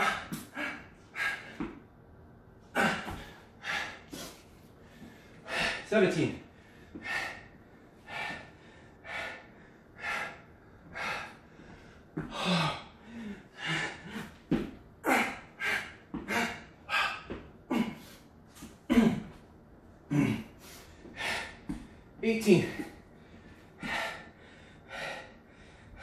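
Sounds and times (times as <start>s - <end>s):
man breathing hard: 0.0s - 1.8s, 2.7s - 19.4s, 20.1s - 26.0s
low grunts: 2.7s - 3.9s, 12.2s - 18.2s, 18.8s - 19.4s, 20.1s - 20.6s.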